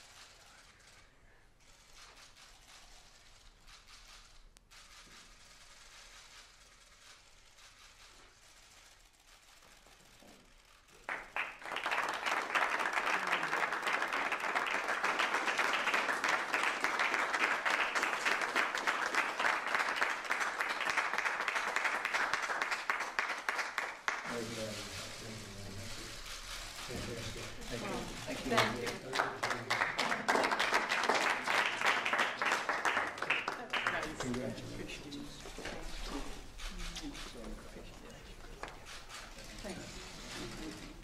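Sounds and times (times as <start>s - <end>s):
audience applauding: 10.9s - 25.7s, 26.6s - 35.5s.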